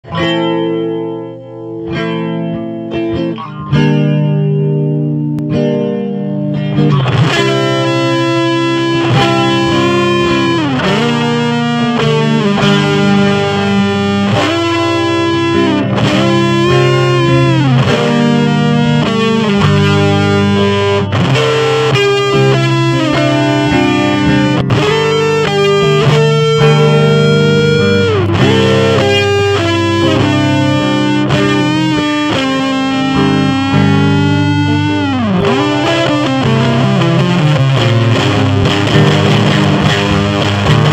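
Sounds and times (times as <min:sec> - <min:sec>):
fuzz electric guitar lead: 0:00.0 - 0:40.9.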